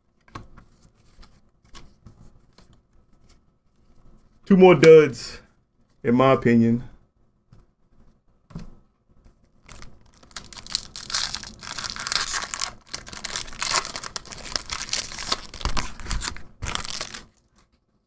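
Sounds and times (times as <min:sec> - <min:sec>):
foil wrapper tearing and crinkling: 0:09.6 - 0:17.5.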